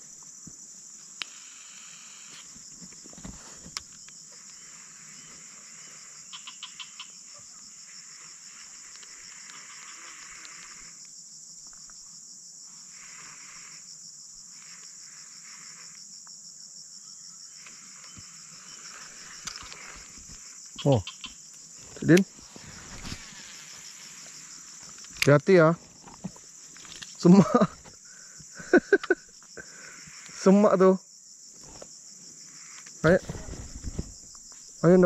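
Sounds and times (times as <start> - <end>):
insect chorus trilling: 0.0 - 35.0
faint clicks: 8.8 - 12.0.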